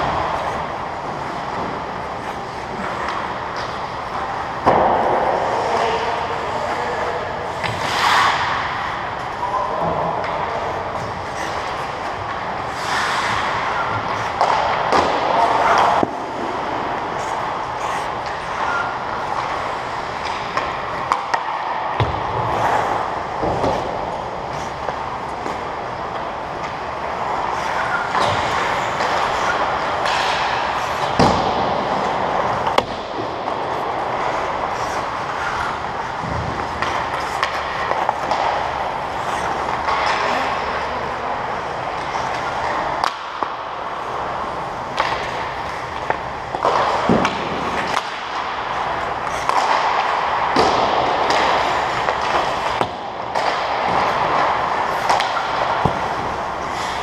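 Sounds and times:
skate blades scraping ice: 10.2 - 21.5, 22.4 - 57.0
hockey stick or puck knock: 13.1 - 16.6, 20.2 - 22.5, 28.1 - 33.6, 45.0 - 48.6, 49.3 - 56.4.

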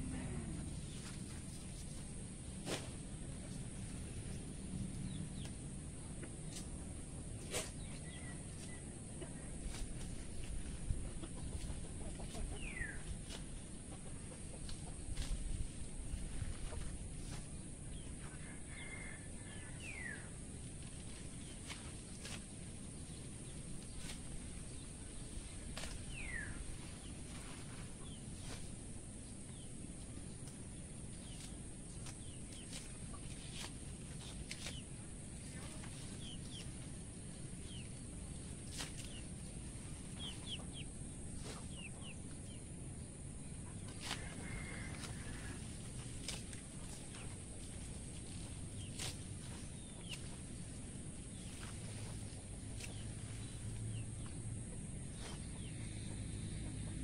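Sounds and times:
steady low rumble: 0.0 - 57.0
small birds chirping: 4.3 - 18.2, 20.9 - 57.0
chickens calling: 11.0 - 15.3, 38.7 - 42.6, 43.6 - 50.8.

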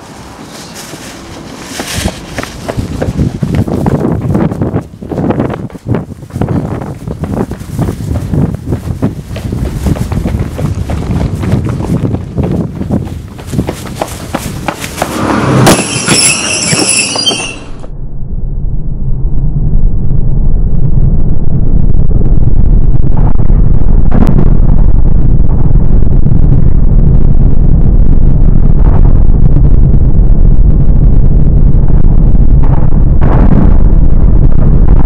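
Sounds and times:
bus rumbling along road: 0.0 - 17.8
high squeal: 15.0 - 18.0.

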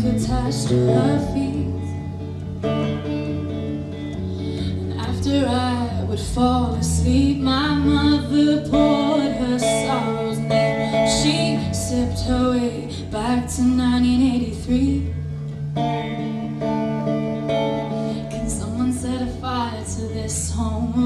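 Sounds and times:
woman singing: 0.0 - 2.3, 4.5 - 15.2, 17.8 - 21.0
acoustic guitar accompaniment: 0.0 - 21.0.

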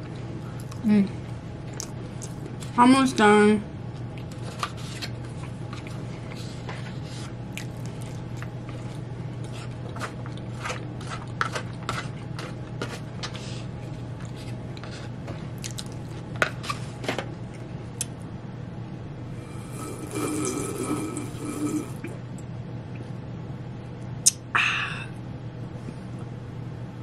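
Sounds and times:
chewing and mouth sounds: 1.7 - 2.7, 7.5 - 12.6, 15.6 - 16.2
fork scraping in bowl: 9.4 - 13.0.

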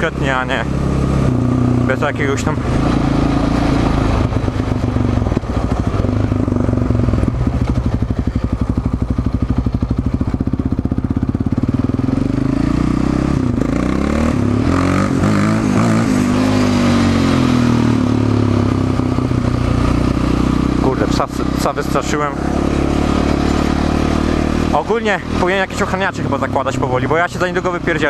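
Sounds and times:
quad bike engine running: 0.0 - 28.0.

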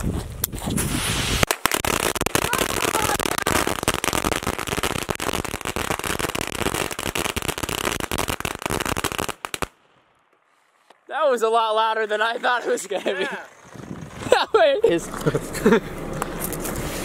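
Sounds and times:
fireworks bangs and crackles: 0.0 - 9.8.

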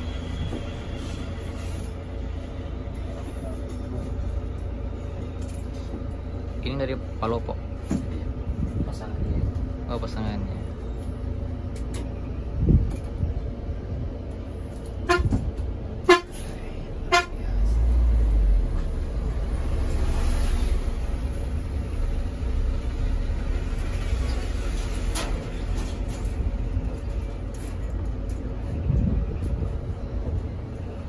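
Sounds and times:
bus rumbling on road: 0.0 - 31.0
vehicle horn toots: 15.0 - 15.4, 16.0 - 16.4, 17.0 - 17.4.

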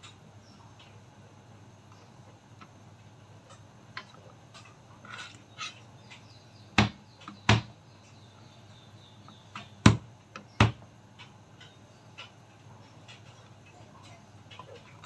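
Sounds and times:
knife chopping on plastic board: 6.8 - 7.7, 9.6 - 10.8.

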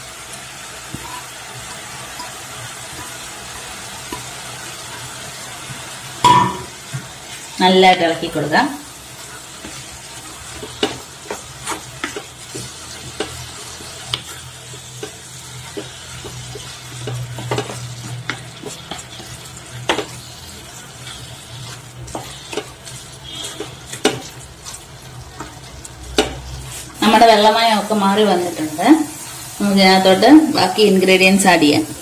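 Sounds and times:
oil sizzling: 0.0 - 32.0
spatula scraping a pan: 9.1 - 27.5.

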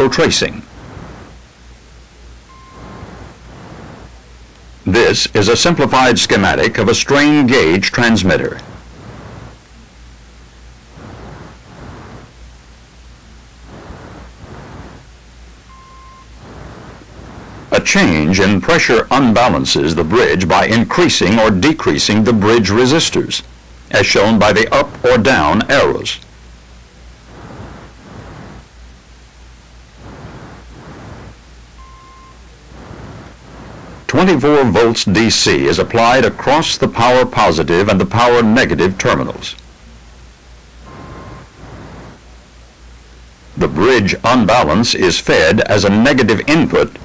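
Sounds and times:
steady low hum: 0.0 - 47.0
tape hiss: 0.0 - 47.0
short steady beep: 2.4 - 4.0, 15.6 - 17.6, 30.2 - 33.2, 40.8 - 42.1
cue tone beep: 2.5 - 3.1, 15.7 - 16.3, 31.8 - 32.5, 40.8 - 41.5.

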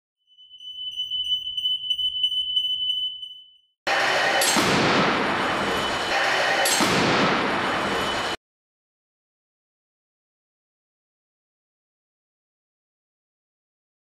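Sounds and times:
high-pitched electronic tone: 0.3 - 4.6
loud rushing noise: 3.9 - 8.4.

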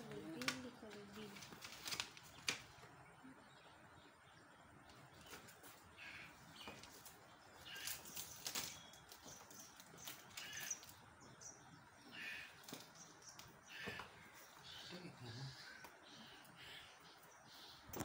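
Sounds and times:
package rustling and scraping: 1.2 - 2.7.

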